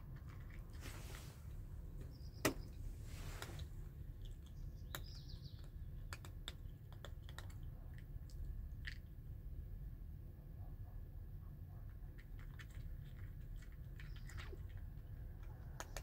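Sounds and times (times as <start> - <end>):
cat chewing food: 0.0 - 0.8, 3.2 - 9.4, 11.8 - 16.0
low background rumble: 0.0 - 16.0.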